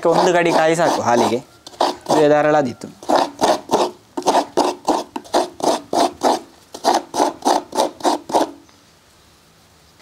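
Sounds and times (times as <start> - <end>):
coconut scraping on metal blade: 0.0 - 8.6.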